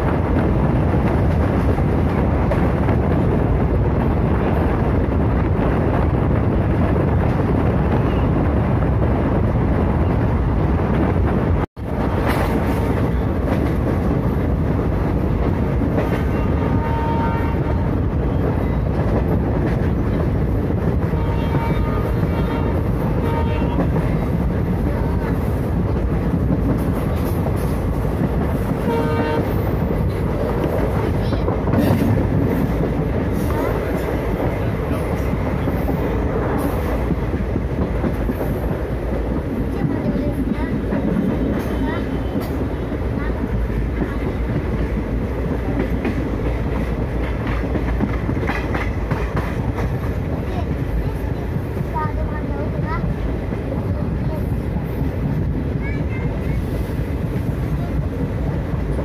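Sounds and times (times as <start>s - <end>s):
train rumble and rail clatter: 0.0s - 59.0s
train horn blasts: 16.2s - 18.0s, 21.1s - 24.0s, 28.8s - 29.8s.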